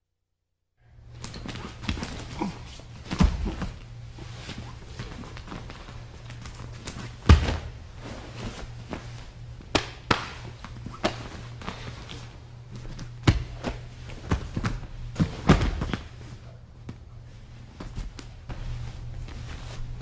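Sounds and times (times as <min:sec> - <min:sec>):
steady low hum: 0:00.8 - 0:20.0
thuds and slaps on mat: 0:01.2 - 0:03.8, 0:06.8 - 0:07.8, 0:09.6 - 0:11.8, 0:12.8 - 0:16.1.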